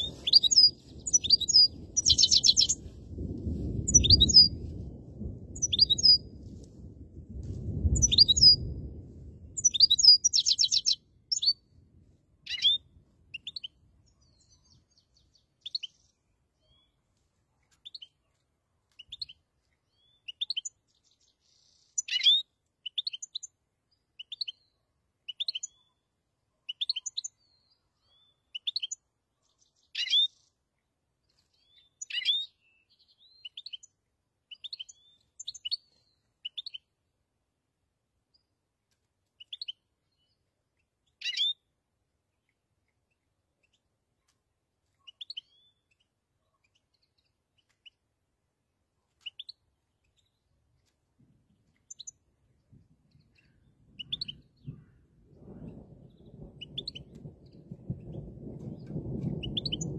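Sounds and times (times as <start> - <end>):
finch twittering: 0.0 - 2.8
low rumble: 0.0 - 10.2.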